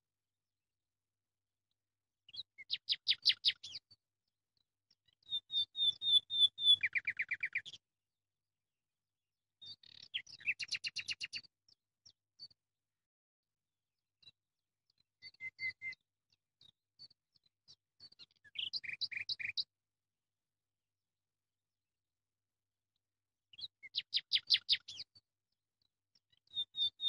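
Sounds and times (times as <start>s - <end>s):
songbird trilling: 5.3s - 7.6s, 18.6s - 19.6s.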